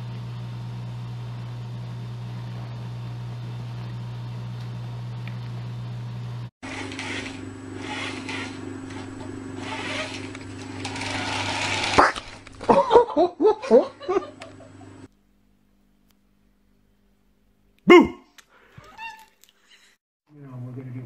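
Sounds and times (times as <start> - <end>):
person laughing: 12.6 - 15.0, 17.9 - 18.3.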